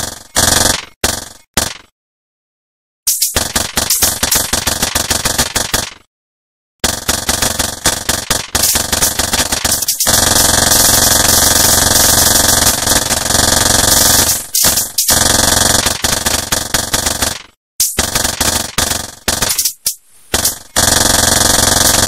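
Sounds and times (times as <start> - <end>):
harsh distorted noise: 6.8 - 22.0.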